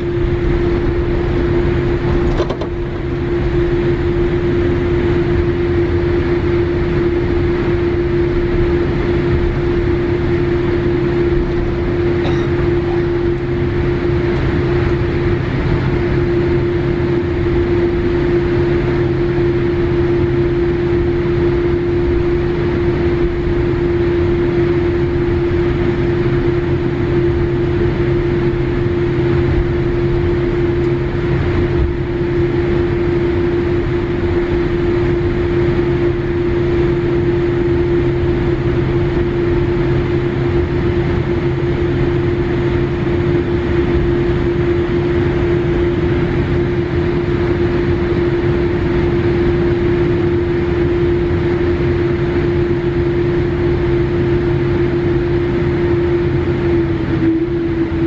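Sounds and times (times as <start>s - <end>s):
jet engines humming at idle: 0.0s - 58.0s
held tone: 10.8s - 14.2s.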